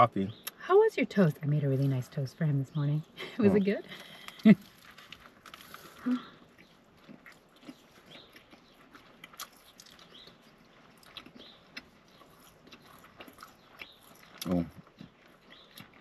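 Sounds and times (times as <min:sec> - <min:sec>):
man chewing with mouth closed: 0:03.9 - 0:16.0.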